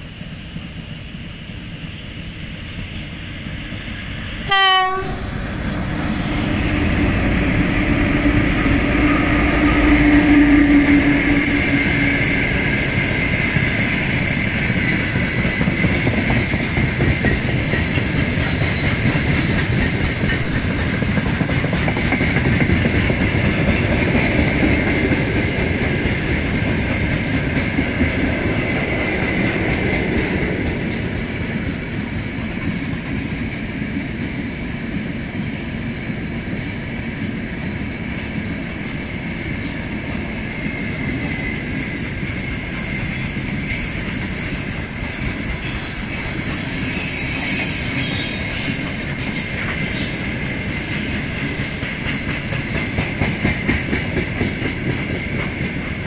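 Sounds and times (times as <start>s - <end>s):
train wheels rumbling: 0.0s - 56.0s
locomotive horn blast: 4.4s - 5.3s.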